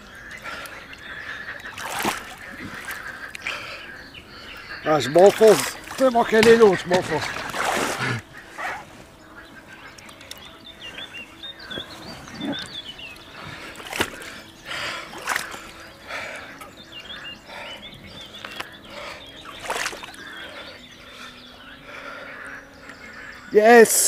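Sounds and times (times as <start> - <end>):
water splashing and dripping: 0.3 - 3.8, 4.4 - 8.4, 11.4 - 21.3.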